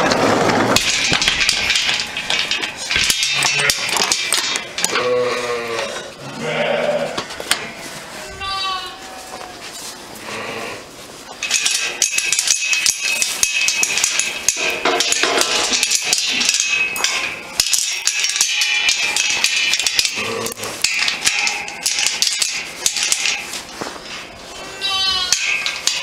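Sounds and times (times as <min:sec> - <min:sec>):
metallic clanks: 0:00.0 - 0:06.2, 0:11.3 - 0:26.0
chain jangling against metal gate: 0:00.9 - 0:05.3, 0:11.4 - 0:24.4, 0:25.0 - 0:26.0.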